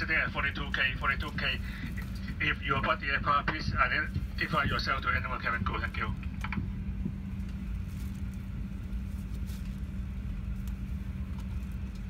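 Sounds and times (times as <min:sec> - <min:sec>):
airliner cabin hum: 0:00.0 - 0:12.0
steady low tone: 0:00.0 - 0:12.0
fabric blanket rustling: 0:07.5 - 0:11.9.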